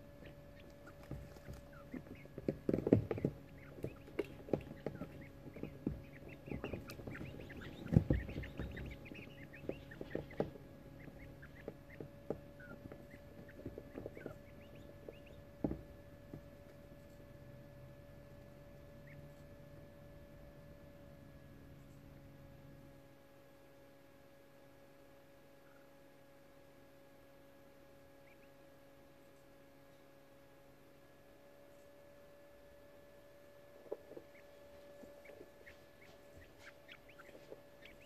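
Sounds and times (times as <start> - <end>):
quail chicks chirping: 0.0 - 22.6, 24.6 - 38.0
faint hum: 0.0 - 38.0
rustling in wood shavings: 33.8 - 38.0.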